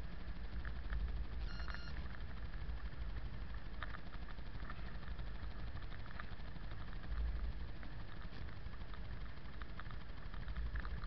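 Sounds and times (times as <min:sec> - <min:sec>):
faint clicks: 0:00.6 - 0:11.0
short electronic beep: 0:01.4 - 0:02.0.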